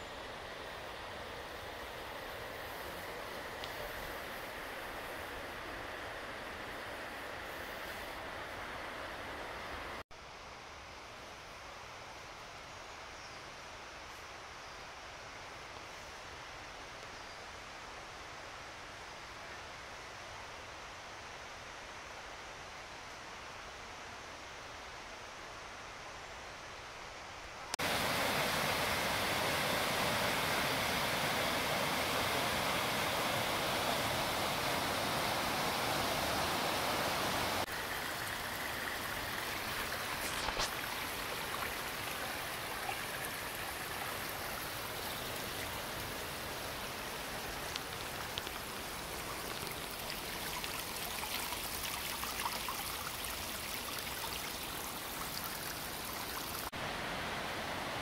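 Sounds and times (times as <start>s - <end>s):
stream rushing over rocks: 27.7s - 58.0s
faint ticks: 47.7s - 48.6s.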